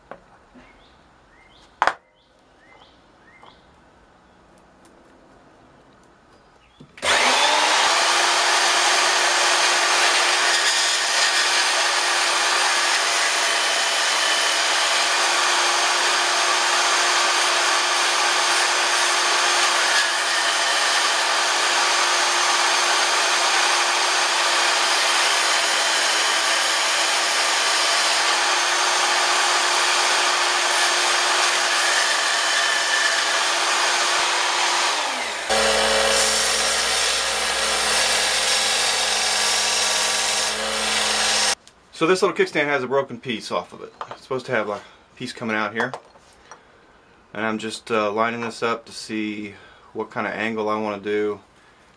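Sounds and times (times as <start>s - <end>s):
belt sander humming: 7.0s - 41.6s
bandsaw blade hissing on metal: 35.0s - 41.6s.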